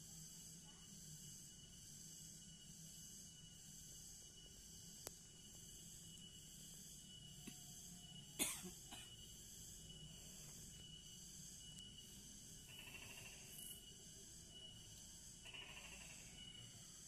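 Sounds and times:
high insect buzz: 0.0 - 17.0
person coughing: 8.4 - 9.2.

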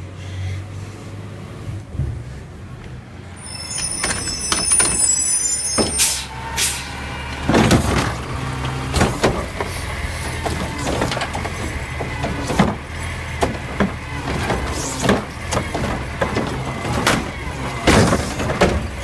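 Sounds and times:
bin-lift arm tipping cart: 3.2 - 19.0
high squeal: 3.3 - 7.2
clunks and knocks of cart: 3.6 - 6.3, 7.3 - 19.0.

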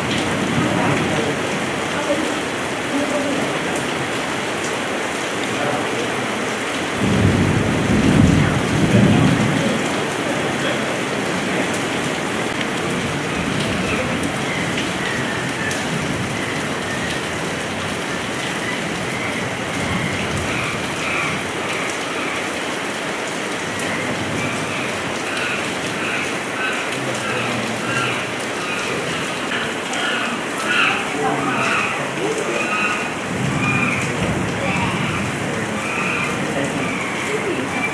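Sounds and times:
heavy rain falling: 0.0 - 37.9
thunder rumbling: 7.0 - 21.6, 31.4 - 37.9.

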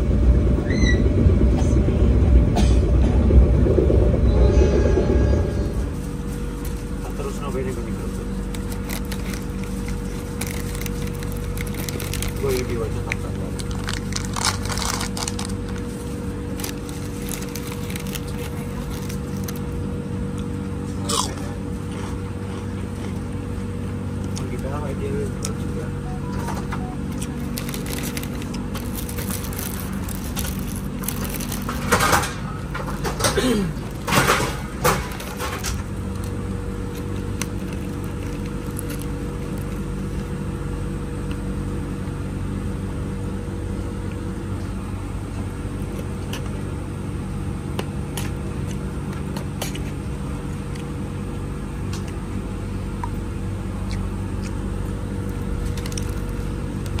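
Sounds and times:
train carriage hum: 0.0 - 57.0
food wrapping crinkling: 8.0 - 19.9, 27.1 - 33.2, 33.8 - 40.4, 55.2 - 56.7.

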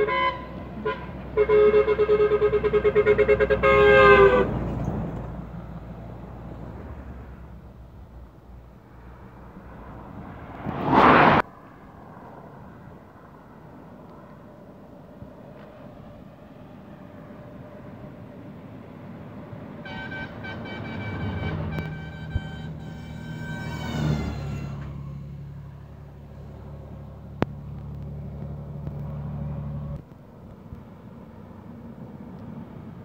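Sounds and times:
truck air horn: 0.0 - 4.7, 19.7 - 26.2
diesel engine and tyres rumbling: 0.0 - 33.0.

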